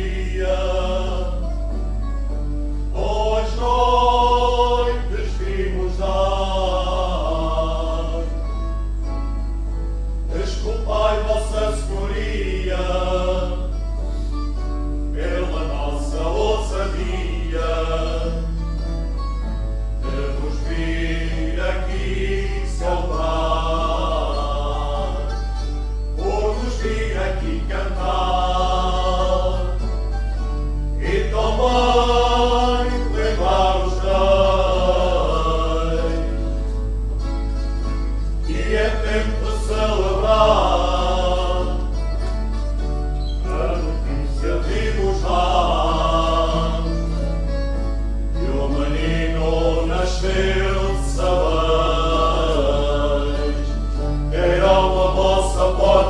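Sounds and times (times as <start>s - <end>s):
men singing: 0.0s - 1.8s, 2.9s - 8.6s, 10.3s - 13.9s, 15.1s - 18.8s, 20.0s - 30.0s, 31.0s - 36.7s, 38.4s - 42.2s, 43.4s - 47.2s, 48.4s - 56.0s
guitar: 0.0s - 56.0s
accordion: 16.3s - 56.0s.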